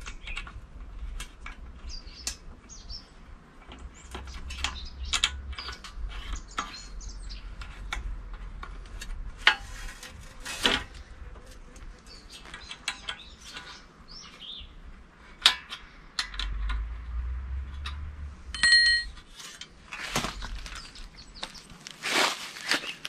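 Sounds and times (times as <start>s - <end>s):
birds chirping: 1.8s - 7.7s, 11.9s - 14.9s, 20.0s - 23.0s
metal tool clicks and knocks: 17.8s - 19.7s
metal ringing clink: 18.5s - 19.2s.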